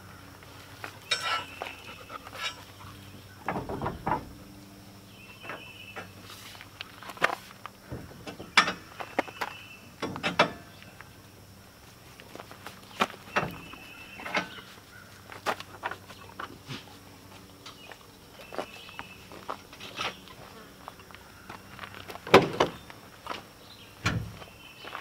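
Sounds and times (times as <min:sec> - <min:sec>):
metal clanks and knocks: 0:01.0 - 0:04.5, 0:07.9 - 0:09.0, 0:10.0 - 0:10.8, 0:13.3 - 0:14.7.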